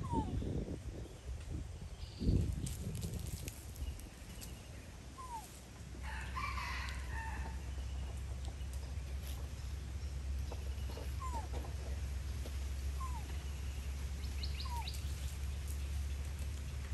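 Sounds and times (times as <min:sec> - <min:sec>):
rooster crowing: 0:06.0 - 0:07.8
steady low rumble: 0:07.0 - 0:16.9.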